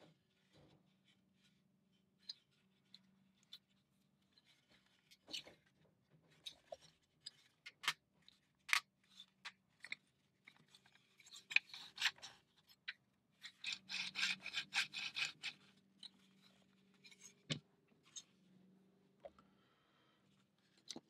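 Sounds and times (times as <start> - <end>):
rapid clicking and rubbing: 8.7 - 18.3.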